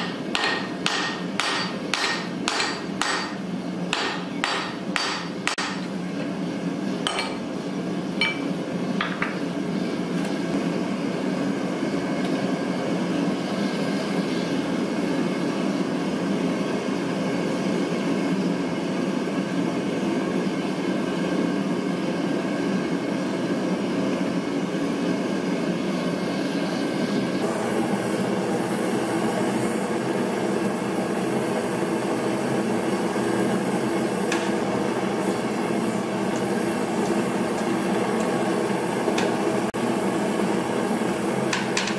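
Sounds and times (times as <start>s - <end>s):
hammer striking a punch: 0.0s - 5.8s.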